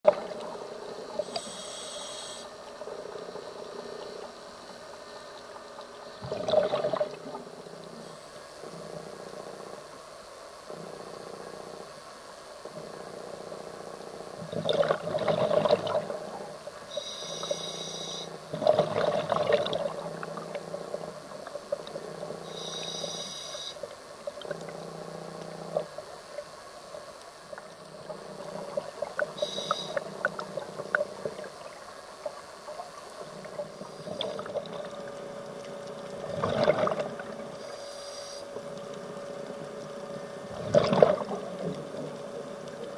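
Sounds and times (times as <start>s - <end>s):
regulator hissing inhalations: 1.2s - 2.6s, 16.9s - 18.4s, 22.5s - 23.8s, 29.4s - 30.0s, 37.6s - 38.5s
bubbly exhaled air: 6.2s - 7.4s, 36.3s - 37.6s, 40.4s - 41.9s.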